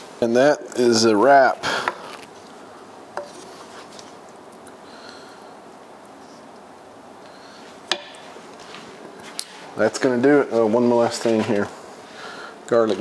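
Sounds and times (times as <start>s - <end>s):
faint hiss: 0.0s - 13.0s
wooden spoon scraping skillet: 3.2s - 4.2s.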